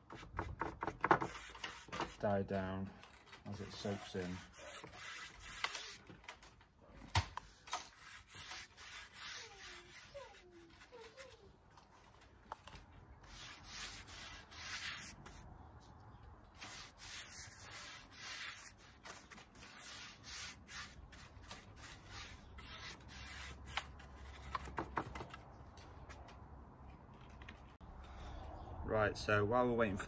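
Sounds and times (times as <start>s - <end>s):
paintbrush strokes on rough wood: 3.5s - 6.0s, 8.0s - 11.4s, 13.3s - 15.4s, 16.6s - 23.9s.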